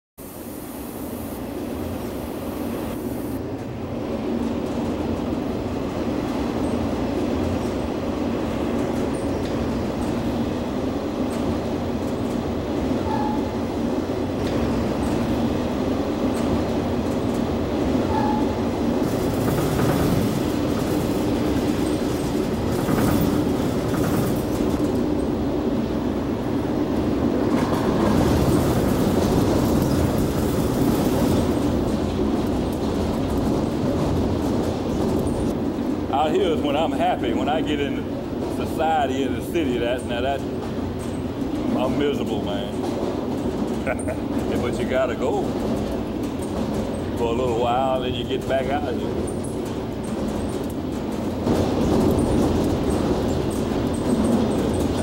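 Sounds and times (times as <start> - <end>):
freight train rumbling: 0.2 - 55.0
train wheels clicking: 6.1 - 55.0.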